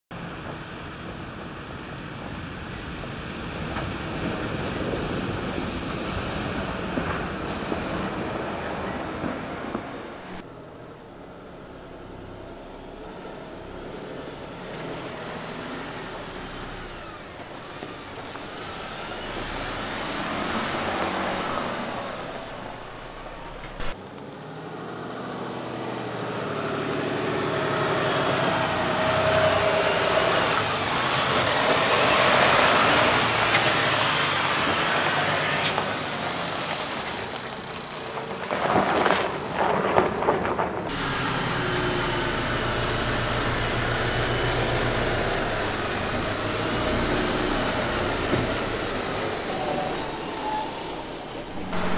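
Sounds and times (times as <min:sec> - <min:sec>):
tyres on rough gravel: 0:03.5 - 0:24.0, 0:30.5 - 0:51.9
truck diesel engine running: 0:10.2 - 0:24.0, 0:40.8 - 0:51.9.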